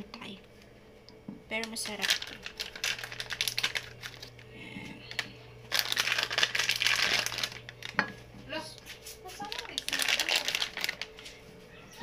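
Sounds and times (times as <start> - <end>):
plastic packaging crinkling: 1.6 - 8.1, 8.7 - 11.5.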